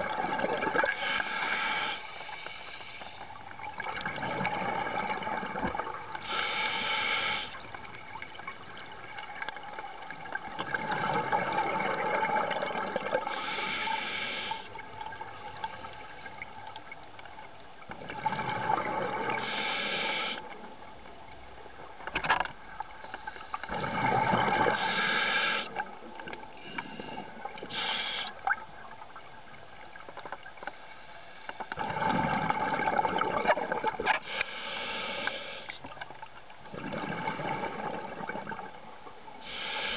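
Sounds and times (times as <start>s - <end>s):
exhaled air bubbling underwater: 0.0s - 39.9s
regulator hiss: 6.2s - 7.6s, 13.3s - 14.7s, 19.4s - 20.5s, 24.8s - 25.8s, 26.8s - 28.4s, 34.3s - 35.7s, 39.4s - 39.9s.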